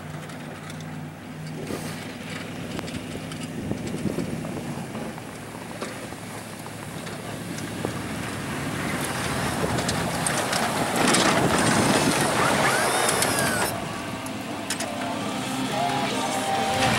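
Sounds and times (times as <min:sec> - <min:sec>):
pickup truck engine: 0:00.0 - 0:16.9
plow blade scraping snow: 0:00.0 - 0:16.9.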